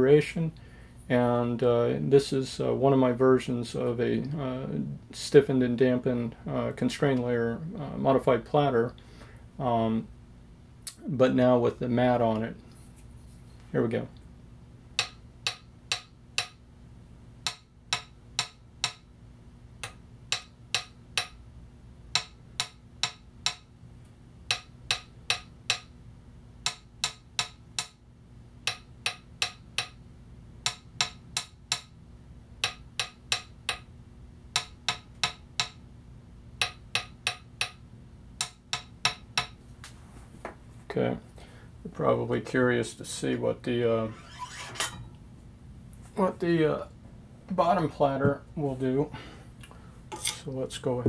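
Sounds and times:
stick tapping metal platter: 0:14.9 - 0:16.6, 0:17.4 - 0:19.1, 0:19.8 - 0:21.4, 0:22.1 - 0:23.7, 0:24.4 - 0:25.9, 0:26.6 - 0:28.0, 0:28.6 - 0:30.0, 0:30.6 - 0:32.0, 0:32.6 - 0:33.9, 0:34.5 - 0:35.8, 0:36.6 - 0:37.8, 0:38.4 - 0:39.6.

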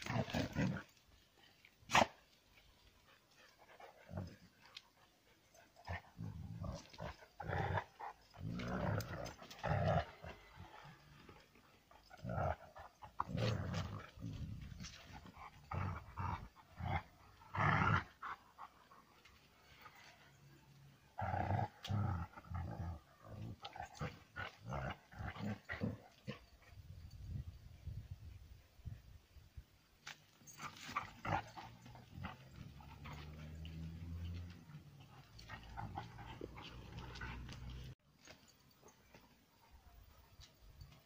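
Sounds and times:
dogs growling: 0:00.0 - 0:01.0, 0:03.1 - 0:04.8, 0:05.4 - 0:19.0, 0:21.1 - 0:26.7, 0:30.5 - 0:38.0.

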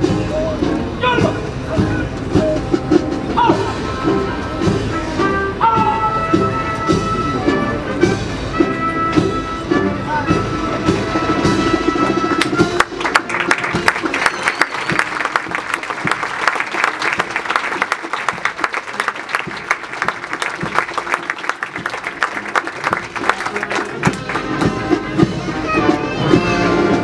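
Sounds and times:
band music: 0:00.0 - 0:27.0
audience applauding: 0:12.0 - 0:25.0.

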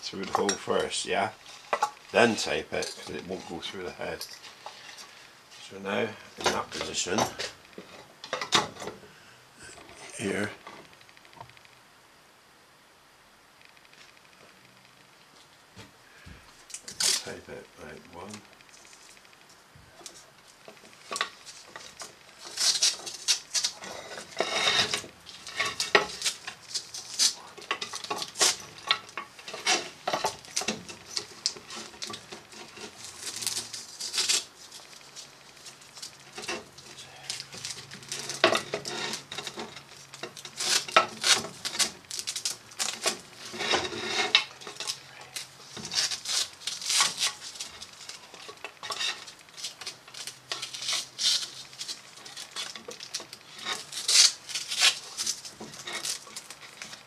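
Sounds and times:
tape pulled off a roll: 0:20.0 - 0:57.0.

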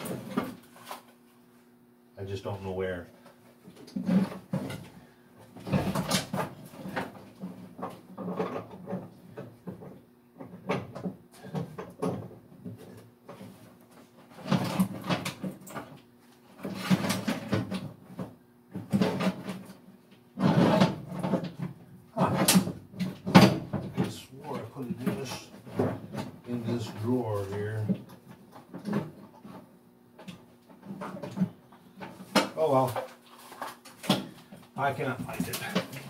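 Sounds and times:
drawers opening and closing: 0:20.4 - 0:21.6.

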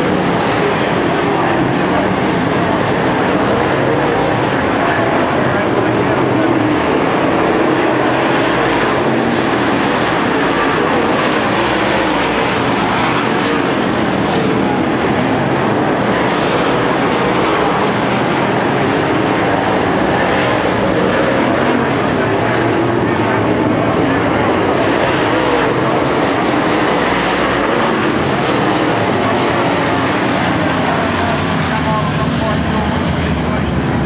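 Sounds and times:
race car engines droning: 0:00.0 - 0:34.0.

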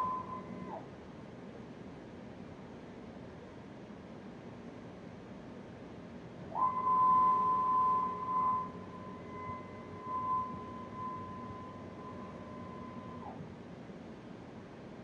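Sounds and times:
stepper motors whining: 0:06.6 - 0:13.4.

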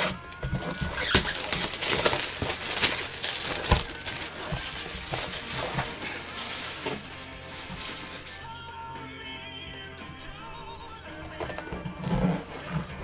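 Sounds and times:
plastic shrink-wrap crinkling: 0:00.0 - 0:08.8.

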